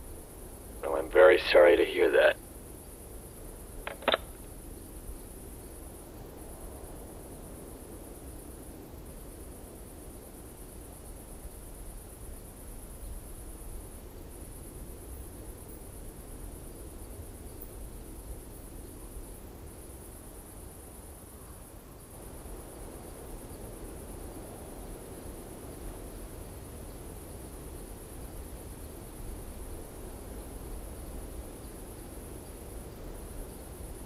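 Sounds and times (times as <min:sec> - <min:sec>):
crickets chirping: 0:00.0 - 0:34.0
short clicks: 0:03.9 - 0:04.4.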